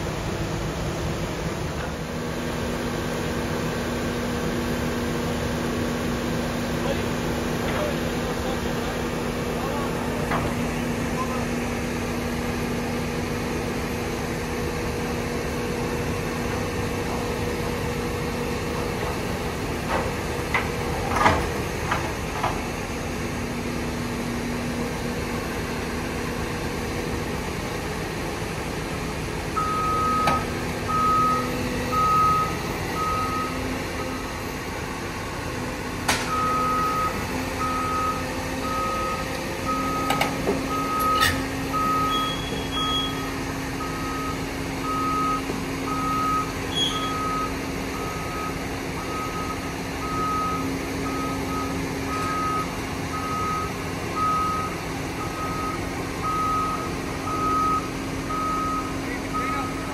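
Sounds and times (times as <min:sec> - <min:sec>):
heavy diesel engines running: 0:00.0 - 0:59.9
backup alarm beeping: 0:29.6 - 0:34.3, 0:36.3 - 0:59.9.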